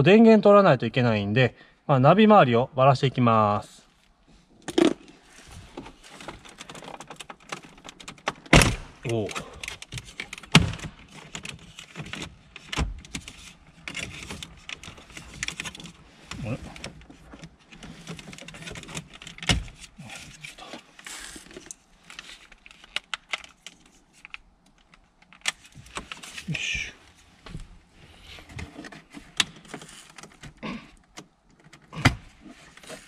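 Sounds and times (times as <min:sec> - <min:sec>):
plastic trim clicking and rattling: 0:06.3 - 0:08.6, 0:09.3 - 0:16.0, 0:21.5 - 0:26.2.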